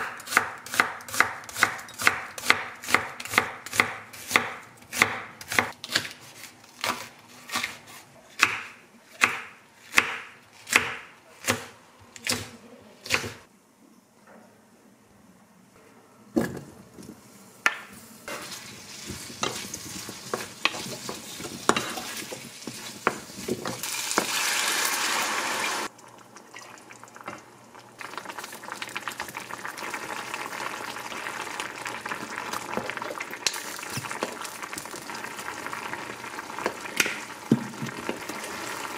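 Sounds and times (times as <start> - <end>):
knife slicing onion on wooden board: 0.0 - 13.4
wooden spatula stirring and scraping: 18.0 - 24.4
potatoes sizzling in oil: 18.2 - 26.2, 26.8 - 38.9
sauce bubbling: 18.6 - 38.9.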